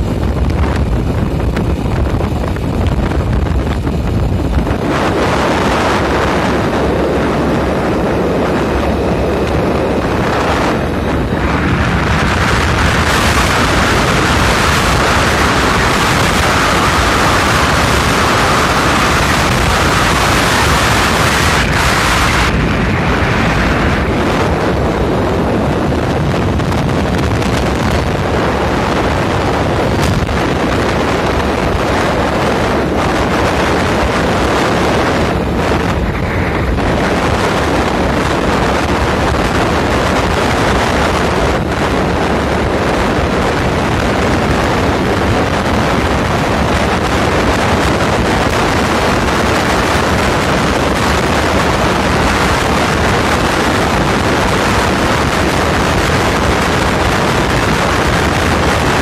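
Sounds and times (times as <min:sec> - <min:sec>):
road and engine rumble: 0:00.0 - 0:59.0
wind rushing over microphone: 0:00.0 - 0:59.0.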